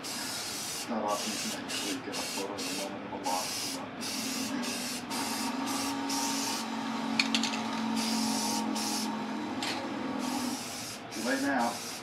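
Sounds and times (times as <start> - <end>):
aerosol spray can hissing: 0.0 - 6.6, 8.0 - 9.1, 10.2 - 12.0.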